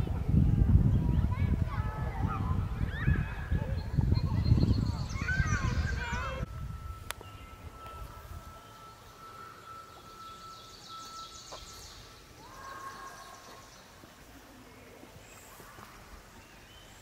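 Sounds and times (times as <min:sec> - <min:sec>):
distant birdsong: 0:02.4 - 0:17.0
rising whistled bird note: 0:02.9 - 0:13.4.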